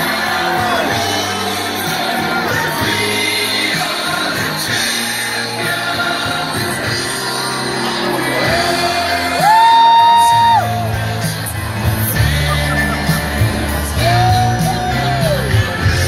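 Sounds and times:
crowd shouting: 0.0s - 16.0s
live rock band music: 0.0s - 16.0s.

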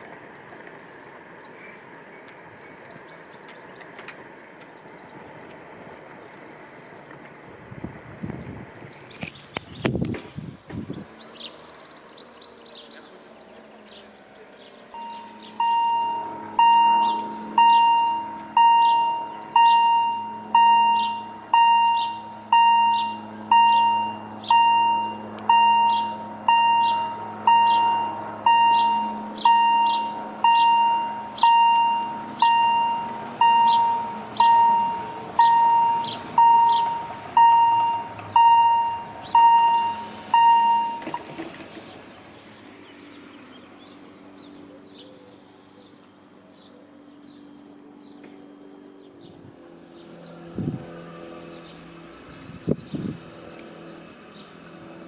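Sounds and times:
level crossing warning bell: 14.9s - 41.3s.

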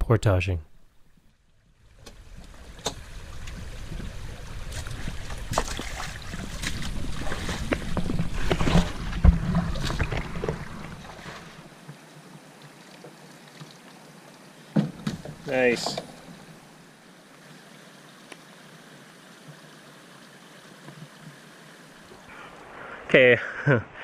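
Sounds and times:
water splashing: 1.8s - 14.1s
wind rumble on microphone: 2.2s - 11.1s
canoe knocking on rocks: 4.8s - 11.6s, 14.7s - 16.3s.

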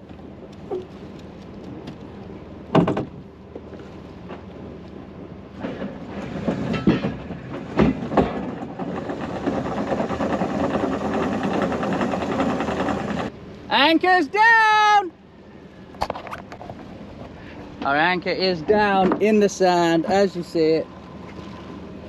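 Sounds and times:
anchor chain rattling: 8.3s - 13.3s.

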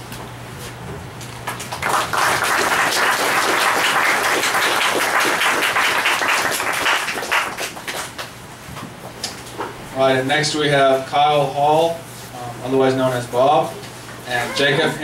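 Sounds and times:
audience applauding: 1.5s - 8.3s.

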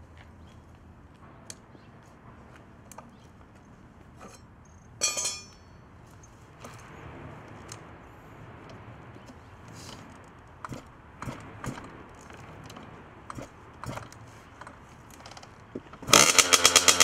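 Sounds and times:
sharp metallic clink: 4.2s - 5.8s.

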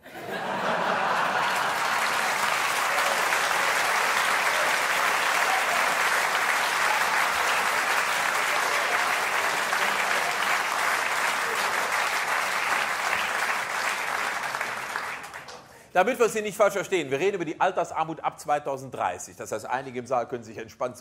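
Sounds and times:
audience applauding: 0.0s - 15.8s.

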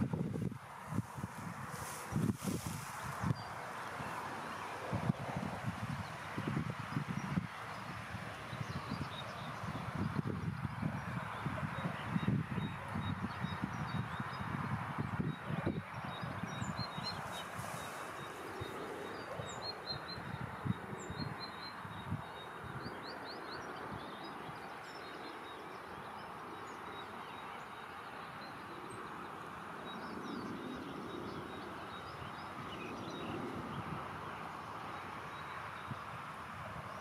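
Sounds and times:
steady background hiss: 0.0s - 5.7s.

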